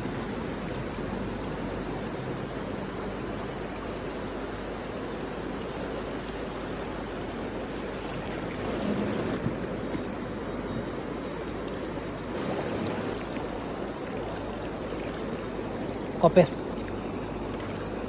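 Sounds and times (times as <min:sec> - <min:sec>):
river water over stones: 0:00.0 - 0:18.0.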